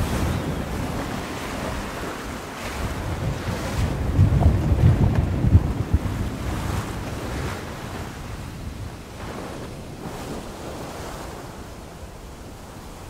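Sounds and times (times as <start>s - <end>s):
sea waves washing: 0.0s - 13.0s
water rushing: 0.0s - 13.0s
wind on microphone: 0.0s - 13.0s.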